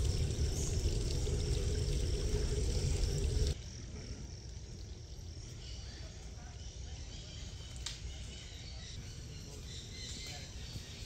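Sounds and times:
low rumble with steady hum: 0.0s - 3.6s
insects chirping: 0.0s - 11.0s.

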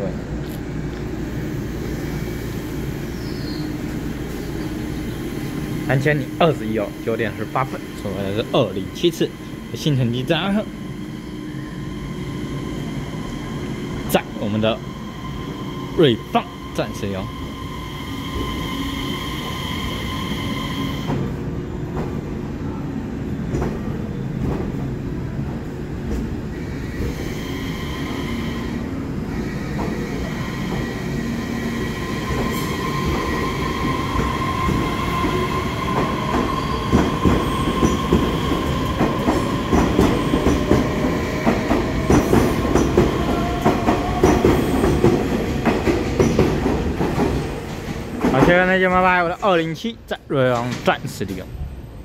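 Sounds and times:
electric train whine: 0.1s - 21.5s, 26.1s - 48.1s.

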